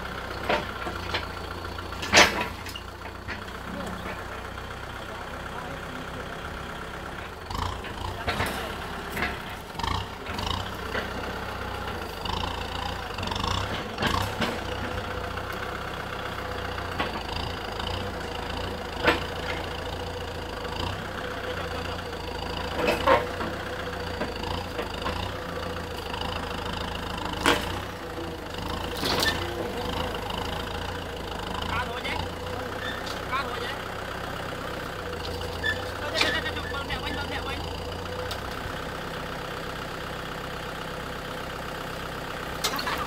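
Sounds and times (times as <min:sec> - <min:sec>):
tractor diesel engine running: 0:00.0 - 0:43.0.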